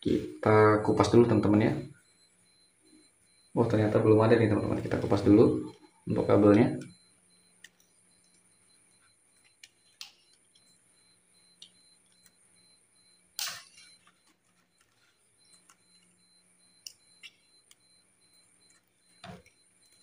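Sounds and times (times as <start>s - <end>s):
faint steady hum: 0.0s - 20.0s
wire stripper clicks: 13.4s - 13.9s.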